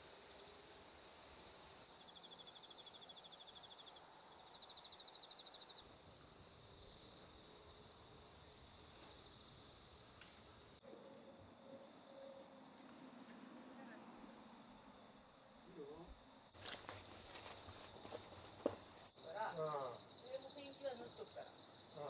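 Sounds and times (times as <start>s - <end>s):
crickets trilling: 0.0s - 22.0s
high-pitched insect drone: 0.0s - 22.0s
rhythmic insect chirping: 0.0s - 22.0s.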